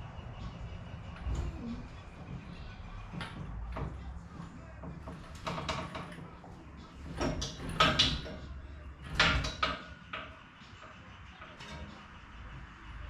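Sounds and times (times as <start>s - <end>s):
scraping creaks: 0.3s - 13.0s
metallic clunks: 3.0s - 12.2s.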